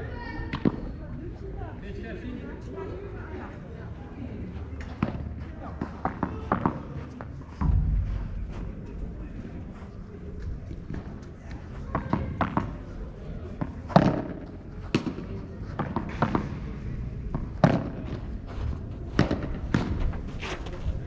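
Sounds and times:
ball struck with rackets: 13.6s - 16.6s.

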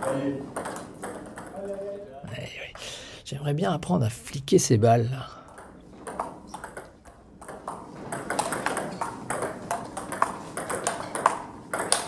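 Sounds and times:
table tennis ball clicking: 0.0s - 1.6s, 5.5s - 12.0s.

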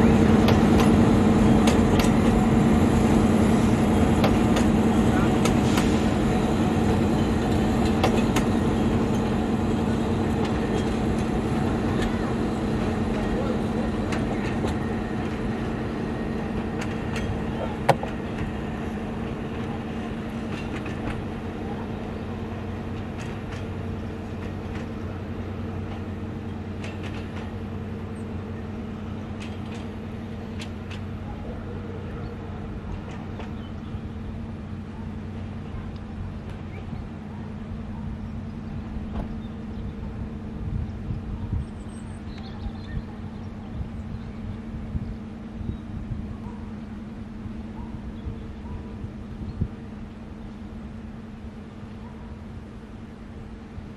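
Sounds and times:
train wheels clicking on rails: 0.0s - 31.2s, 32.8s - 33.9s
diesel locomotive engine note: 0.0s - 53.9s.

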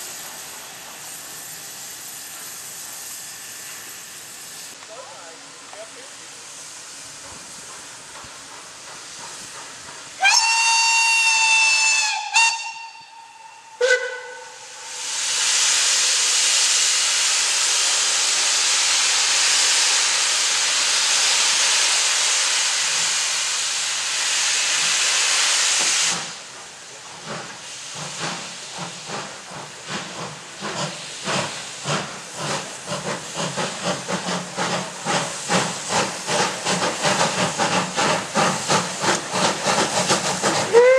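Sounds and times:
hiss of escaping steam: 0.0s - 40.9s
steam locomotive exhaust chuffs: 5.7s - 40.9s
steam locomotive whistle: 10.2s - 15.1s, 40.7s - 40.9s.

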